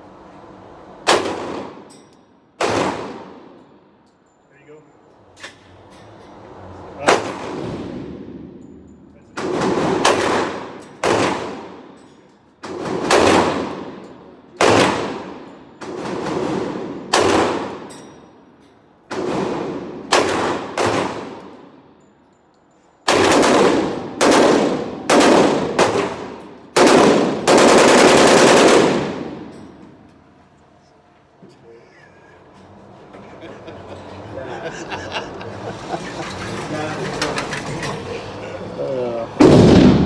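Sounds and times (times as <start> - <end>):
pistol shots echoing indoors: 1.0 - 2.0, 2.6 - 3.6, 7.0 - 8.7, 9.3 - 18.1, 19.0 - 21.8, 23.0 - 29.8, 39.4 - 40.0.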